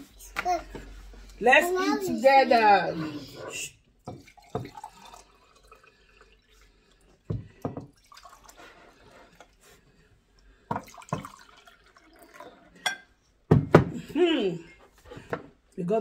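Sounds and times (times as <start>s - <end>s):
water pouring into a glass: 4.0s - 9.6s, 10.6s - 13.1s
water dripping and trickling: 4.0s - 9.7s, 10.4s - 12.9s.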